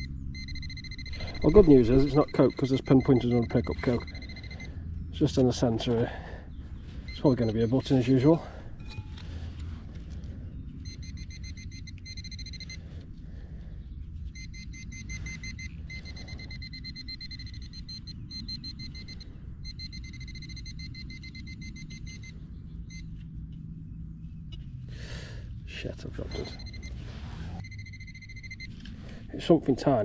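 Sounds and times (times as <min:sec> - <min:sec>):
pinpointer high tone: 0:00.0 - 0:04.8, 0:07.1 - 0:08.2, 0:27.6 - 0:28.8.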